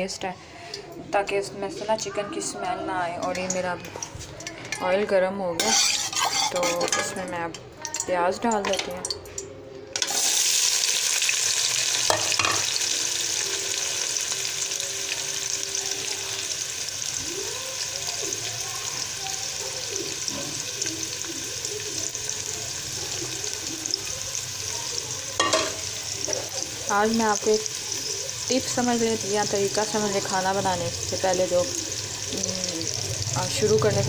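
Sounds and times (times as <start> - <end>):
onions sizzling in hot oil: 5.6 - 8.2, 10.0 - 34.0
steel ladle knocking on pan: 25.4 - 25.8.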